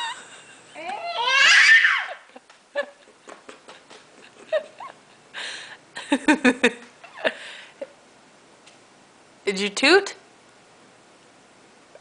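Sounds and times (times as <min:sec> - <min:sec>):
baby squealing: 0:00.8 - 0:02.3.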